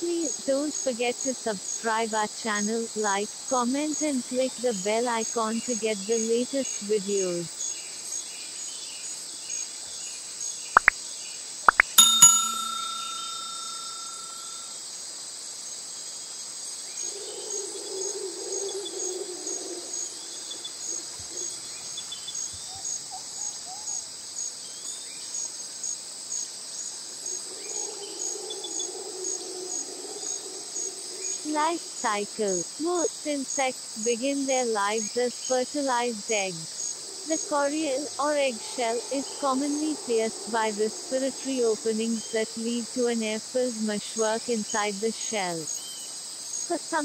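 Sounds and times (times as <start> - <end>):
crickets chirring: 0.0 - 47.0
sharp clicks: 11.7 - 12.0
bell-like ding: 11.9 - 14.7.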